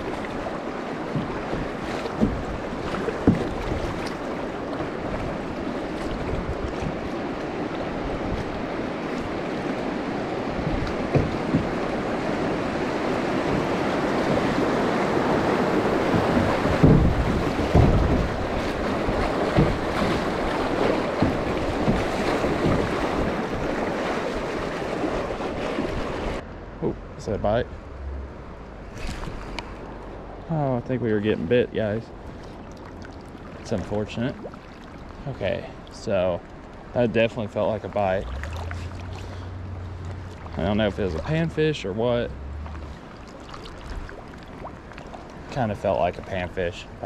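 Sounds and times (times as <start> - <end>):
water rushing over river riffle: 0.0 - 26.4, 27.9 - 47.0
knocks on kayak hull: 1.1 - 4.2, 10.6 - 11.8, 16.0 - 23.7.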